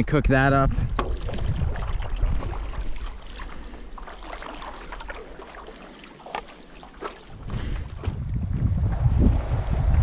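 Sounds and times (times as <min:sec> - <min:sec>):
wind rumble on microphone: 0:00.2 - 0:03.2, 0:07.3 - 0:10.0
paddle splashing in water: 0:00.8 - 0:10.0.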